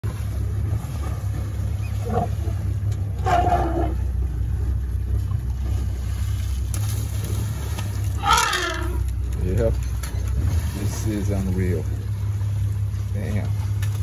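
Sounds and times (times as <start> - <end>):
engine idling drone: 0.1 - 14.0.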